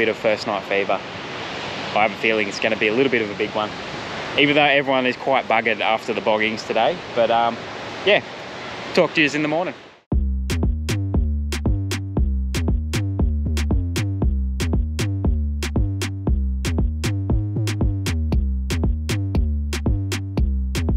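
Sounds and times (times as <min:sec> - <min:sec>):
drum machine beat: 0:10.1 - 0:20.9
heavy synth bass: 0:10.1 - 0:20.9.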